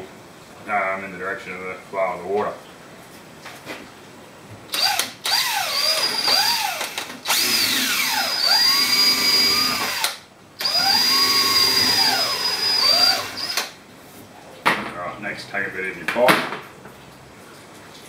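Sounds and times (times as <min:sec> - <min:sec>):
cordless drill boring through plastic: 0:04.7 - 0:13.8.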